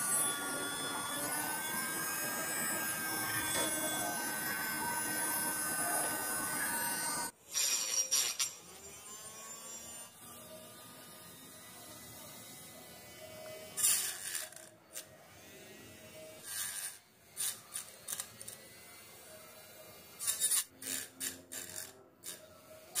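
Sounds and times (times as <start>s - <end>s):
grinding disc rasping: 0.0s - 9.9s
small grinder whining: 0.0s - 23.0s.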